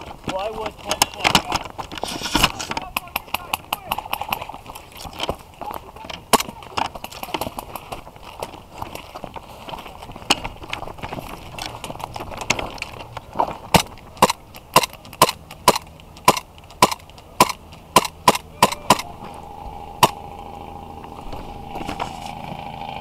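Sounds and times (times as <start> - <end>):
rustling and ticking of movement: 0.0 - 23.0
airsoft gun shots: 13.8 - 19.1.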